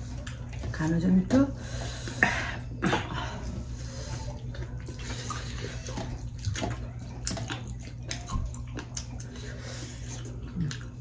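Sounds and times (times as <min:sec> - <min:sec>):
fingers squishing food: 0:04.3 - 0:11.0.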